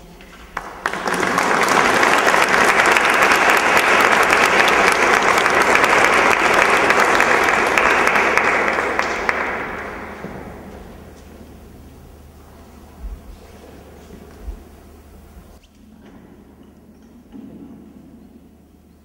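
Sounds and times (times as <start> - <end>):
audience applauding: 0.5 - 10.9.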